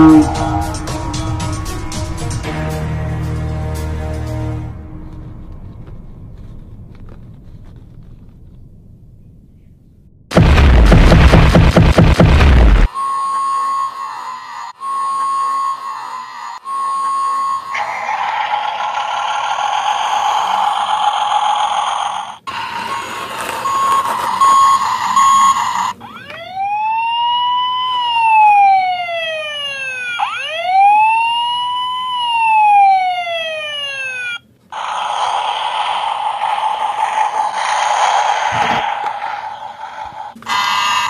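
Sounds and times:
toy electronic noise effect: 0.0 - 0.9, 12.7 - 28.6, 33.5 - 41.0
toy siren: 0.0 - 1.3, 12.9 - 41.0.

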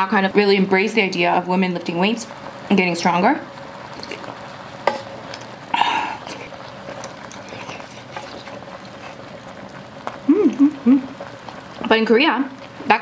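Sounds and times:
faint steady hum: 0.0 - 13.0
mouth eating noises: 4.0 - 4.4, 5.3 - 11.9.

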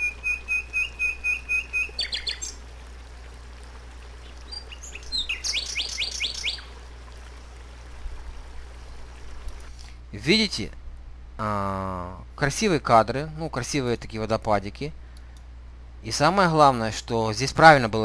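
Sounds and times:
songbirds singing: 0.0 - 7.0
low steady hum: 0.0 - 18.0.

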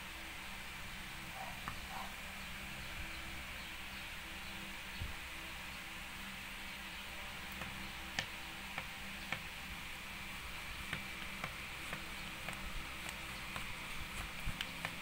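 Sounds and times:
steady hiss: 0.0 - 15.0
light sharp clicks: 10.8 - 15.0.

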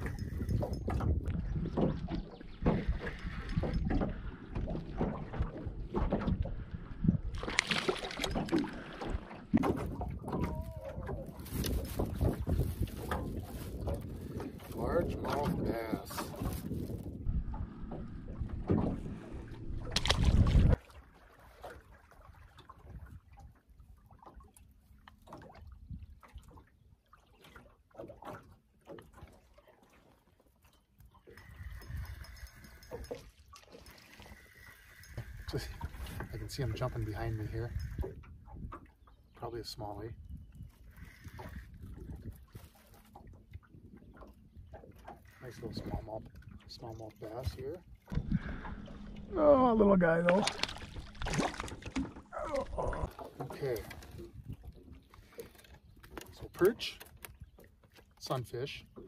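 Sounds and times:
wind buffeting microphone: 0.0 - 20.8, 35.0 - 39.1, 39.9 - 46.7, 47.3 - 55.2
waves slapping boat hull: 0.0 - 59.0.

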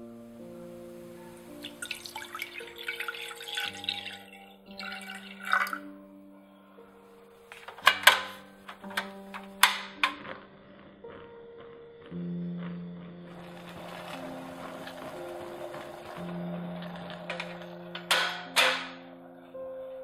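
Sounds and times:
soft background music: 0.0 - 20.0
liquid pouring into saucepan: 1.6 - 5.9.

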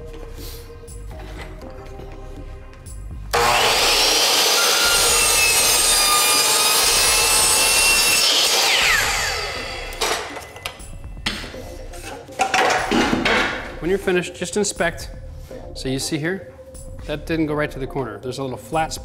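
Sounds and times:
miter saw cutting: 3.3 - 10.9
saw blade winding down whine: 3.3 - 11.0.

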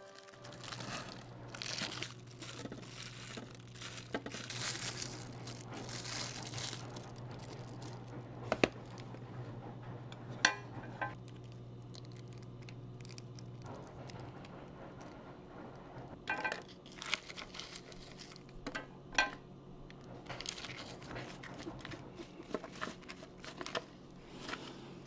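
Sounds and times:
plastic film crinkling: 0.0 - 8.2, 11.2 - 13.6, 16.7 - 18.6, 20.4 - 24.7
steady low hum: 0.2 - 25.0.

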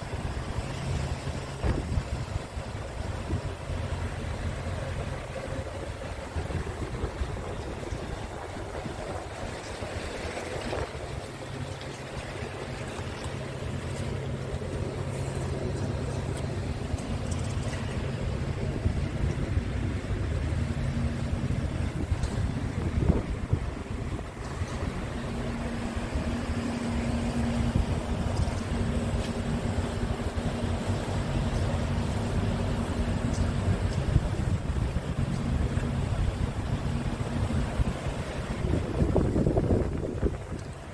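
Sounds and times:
steady hum: 0.0 - 40.9
truck diesel engine idling: 0.0 - 40.9
wind buffeting microphone: 0.0 - 40.9.

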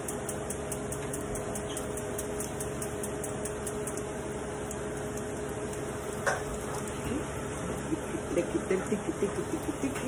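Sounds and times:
stove igniter ticking: 0.0 - 7.0
steady hum: 0.0 - 10.0.

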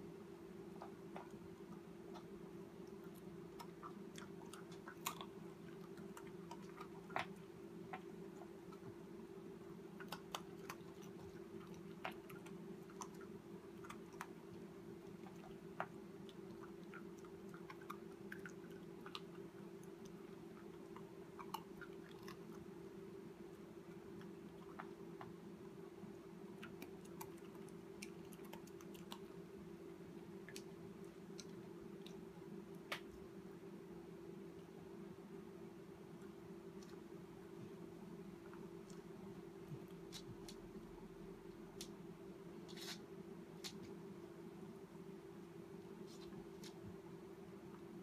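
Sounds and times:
low steady hum: 0.0 - 48.0
puppy chewing food: 0.1 - 33.0.

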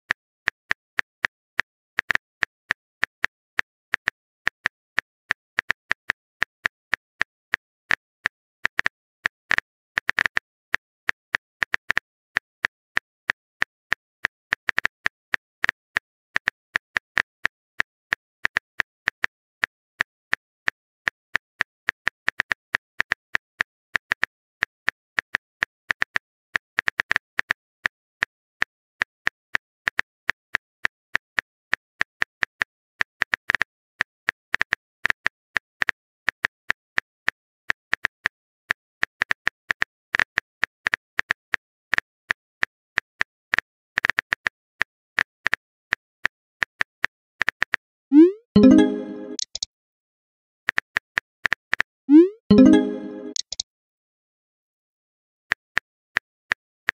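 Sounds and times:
phone keyboard clicks: 48.6 - 49.7, 52.5 - 53.6.

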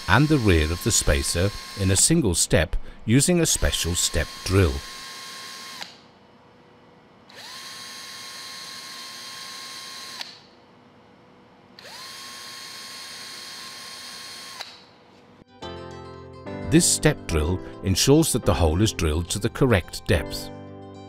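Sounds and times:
power drill whining: 0.0 - 2.2, 3.5 - 6.0, 7.3 - 10.5, 11.8 - 15.0.

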